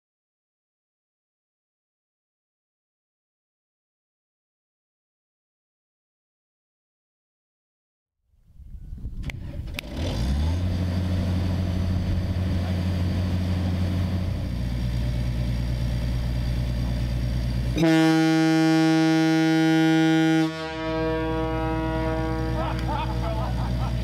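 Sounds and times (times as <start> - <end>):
deep ship horn: 17.8 - 24.0.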